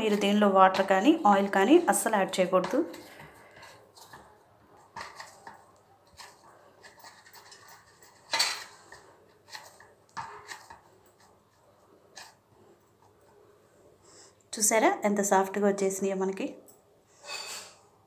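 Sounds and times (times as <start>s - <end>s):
hand kneading dough on metal plate: 0.0s - 13.6s.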